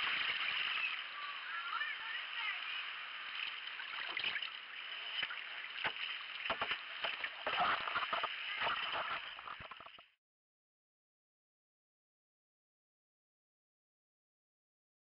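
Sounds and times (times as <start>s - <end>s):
water sloshing around kayak: 0.0s - 10.0s.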